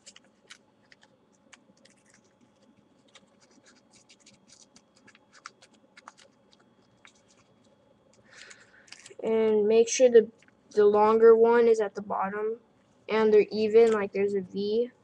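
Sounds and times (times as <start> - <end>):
paper rustling and crinkling: 0.0 - 9.2
small scratches and clicks: 0.0 - 9.2.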